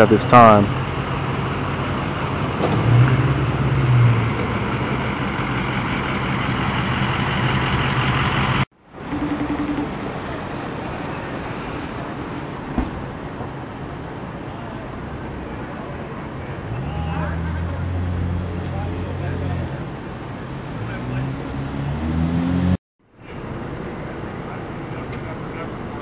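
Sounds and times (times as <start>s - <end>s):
street traffic noise: 0.0s - 26.0s
vehicle engine idling: 0.7s - 13.3s, 23.1s - 26.0s.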